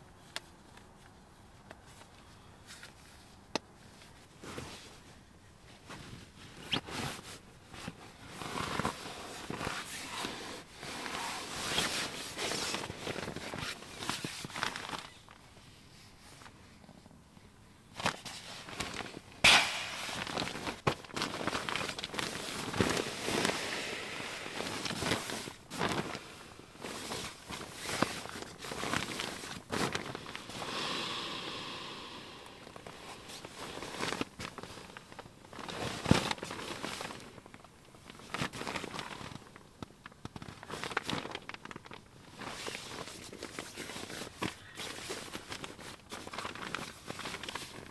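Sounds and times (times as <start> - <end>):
sharp snap: 19.4 - 20.8
nylon gear rustling: 19.7 - 30.5.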